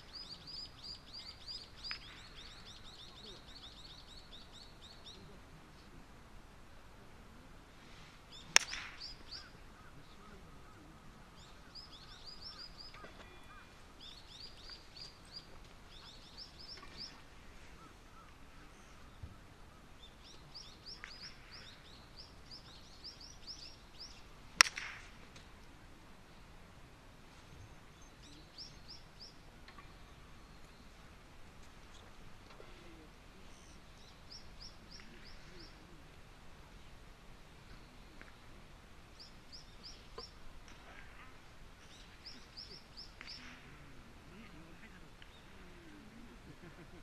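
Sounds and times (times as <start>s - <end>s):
bird chirping: 0.0s - 5.4s, 8.3s - 25.0s, 27.5s - 31.1s, 32.8s - 36.0s, 37.6s - 45.9s
faint background hiss: 0.0s - 47.0s
golf club striking ball: 8.5s - 9.2s, 24.6s - 25.5s.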